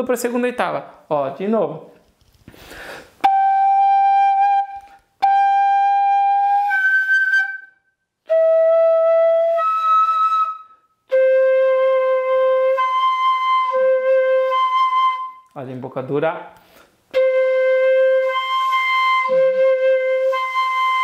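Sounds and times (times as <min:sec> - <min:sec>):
fife playing long notes: 0:03.2 - 0:07.7, 0:08.3 - 0:15.4, 0:17.1 - 0:21.0.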